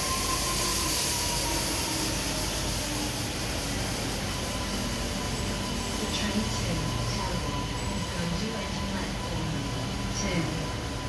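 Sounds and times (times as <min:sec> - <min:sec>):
electric train rolling: 0:00.0 - 0:11.0.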